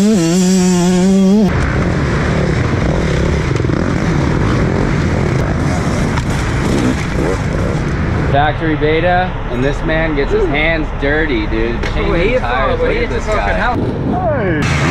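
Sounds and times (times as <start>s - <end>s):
dirt bike engine buzzing: 0.0s - 8.3s.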